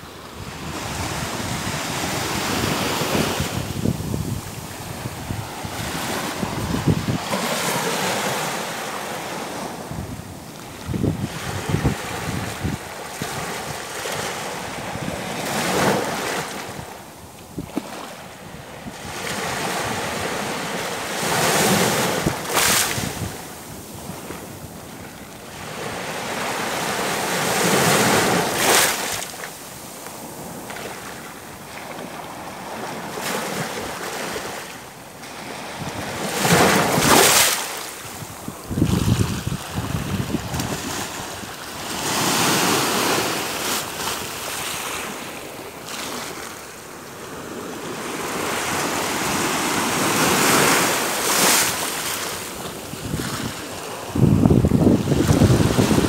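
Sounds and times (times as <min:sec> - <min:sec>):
waves washing on beach: 0:00.0 - 0:56.0
wind buffeting microphone: 0:00.4 - 0:08.2, 0:09.6 - 0:13.6, 0:38.0 - 0:43.3, 0:52.9 - 0:56.0.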